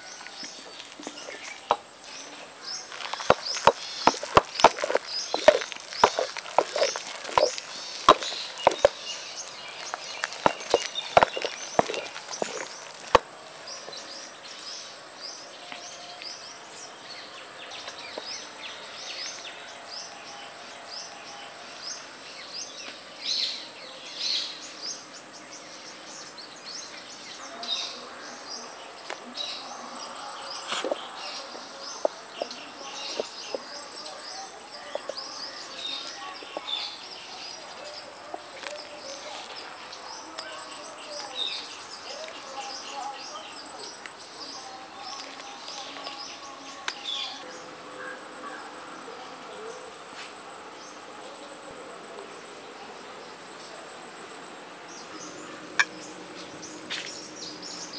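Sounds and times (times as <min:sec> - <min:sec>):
birds chirping and calling: 0:00.0 - 0:14.9, 0:25.9 - 0:48.6
insect high-pitched whine: 0:29.8 - 0:49.2.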